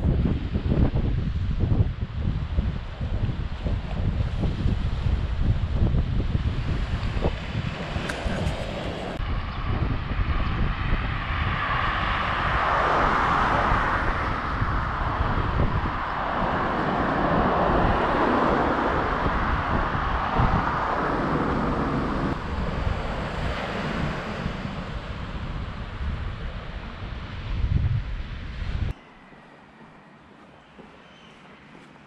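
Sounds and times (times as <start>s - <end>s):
wind buffeting microphone: 0.0s - 29.0s
sea surf: 2.4s - 9.2s, 11.3s - 28.9s.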